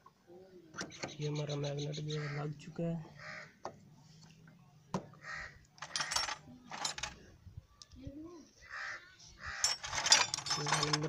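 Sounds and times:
metal tools clinking and rattling: 0:05.8 - 0:07.2, 0:09.6 - 0:11.0.

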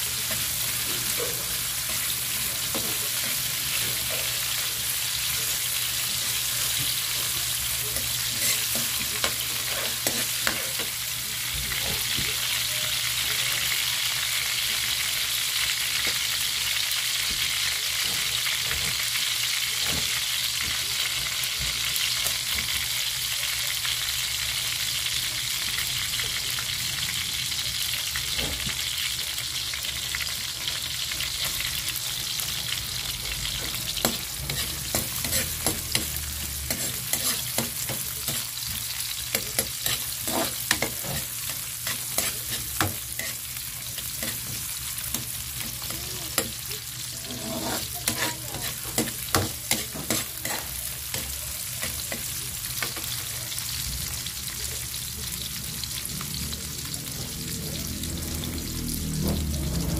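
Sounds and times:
ginger and garlic sizzling in oil: 0:00.0 - 0:59.9
metal spatula scraping a pan: 0:08.0 - 0:11.0, 0:33.5 - 0:53.0.

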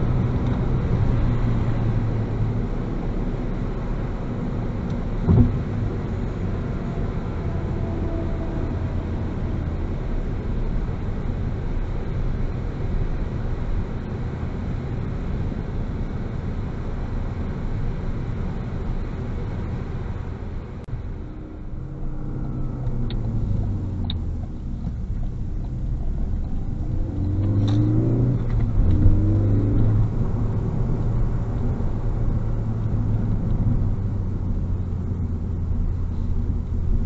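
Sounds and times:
car engine drone: 0:00.0 - 0:37.0
tyre and road noise: 0:00.0 - 0:37.0
sharp thump: 0:05.2 - 0:05.6.

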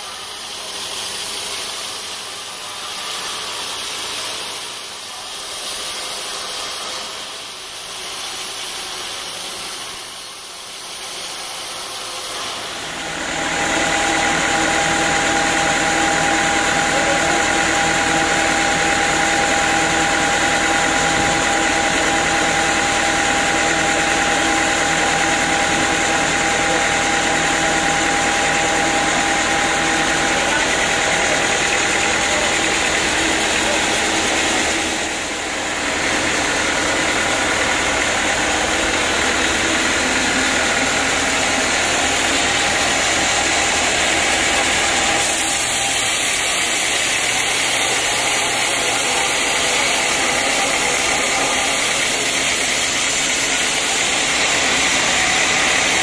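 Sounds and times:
band sawmill machinery running: 0:00.0 - 0:56.0.

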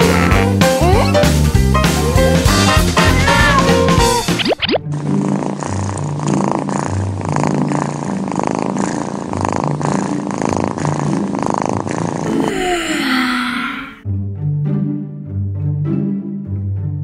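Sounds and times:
cat purring: 0:04.9 - 0:12.8.

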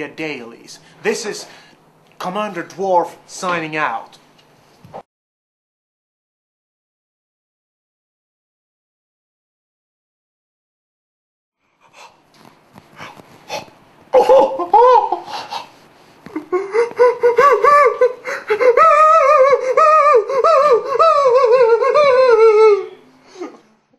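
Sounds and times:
person laughing loudly: 0:14.1 - 0:15.7, 0:16.3 - 0:23.6.

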